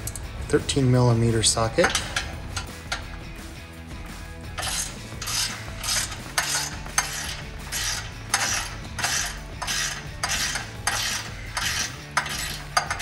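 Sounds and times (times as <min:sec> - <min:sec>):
ratchet clicking: 0:04.6 - 0:13.0.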